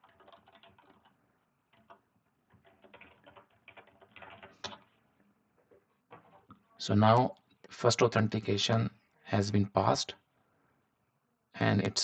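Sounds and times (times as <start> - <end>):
typing on computer keyboard: 0.0 - 5.0, 5.6 - 6.6.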